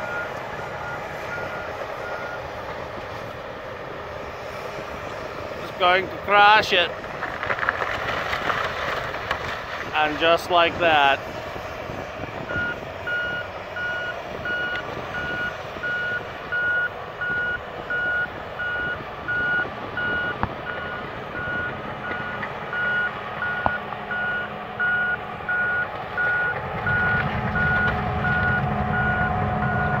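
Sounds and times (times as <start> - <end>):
reversing alarm beeping: 0.0 - 2.5, 12.5 - 30.0
diesel engine running: 0.0 - 30.0.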